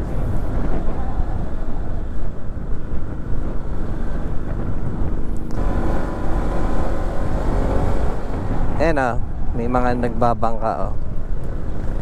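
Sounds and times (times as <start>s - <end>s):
engine hum: 0.0s - 12.0s
wind buffeting microphone: 0.0s - 12.0s.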